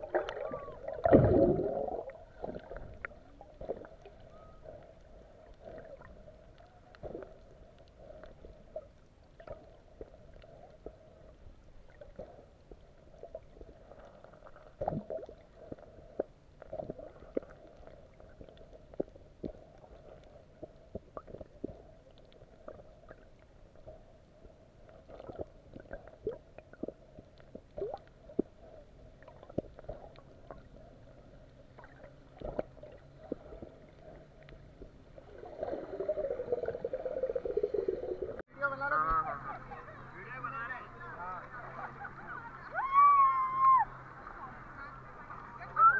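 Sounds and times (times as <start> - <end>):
water bubbles gurgling and popping: 0.0 - 23.4, 24.9 - 30.8, 31.7 - 38.4
underwater low drone: 0.0 - 38.4, 39.1 - 45.9.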